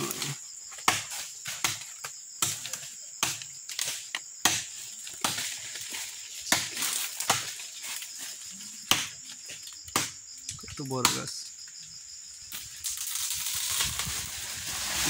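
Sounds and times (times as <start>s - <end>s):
machete chopping tree trunk: 0.0s - 5.8s, 6.4s - 7.6s, 8.8s - 9.2s, 9.9s - 10.2s, 11.0s - 11.4s
insects buzzing: 0.0s - 15.0s.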